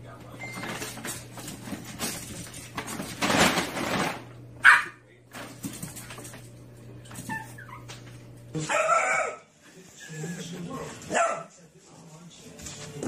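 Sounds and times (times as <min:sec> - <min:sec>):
dog barking: 0:04.6 - 0:05.0, 0:08.6 - 0:09.5, 0:11.1 - 0:11.5.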